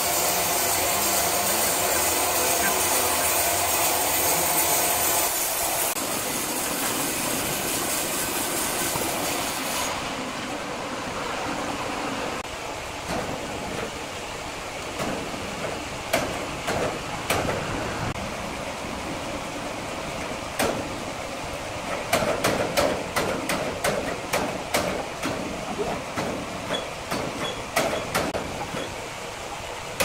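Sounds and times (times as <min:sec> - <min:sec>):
band sawmill cutting log: 0:00.0 - 0:10.3.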